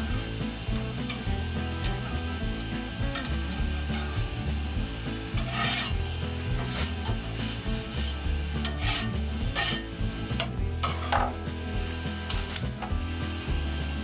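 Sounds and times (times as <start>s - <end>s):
blade scraping printer bed: 5.4s - 10.0s.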